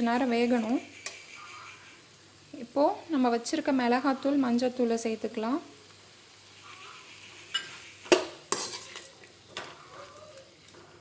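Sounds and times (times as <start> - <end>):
vegetables sizzling in oil: 0.0 - 11.0
ladle scraping metal pan: 8.5 - 10.2.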